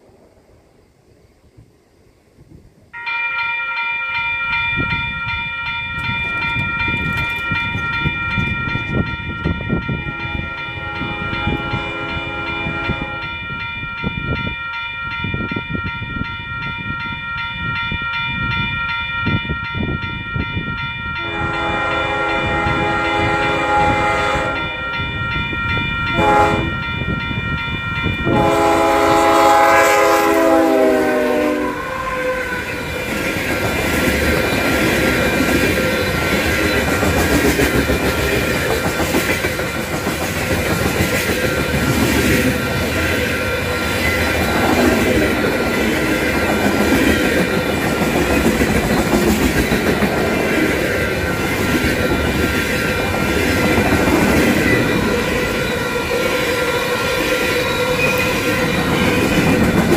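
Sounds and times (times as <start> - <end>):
crossing bell ringing: 3.0 - 59.9
train horn blasting: 10.0 - 13.4, 21.2 - 24.9, 26.1 - 27.0, 28.2 - 33.1.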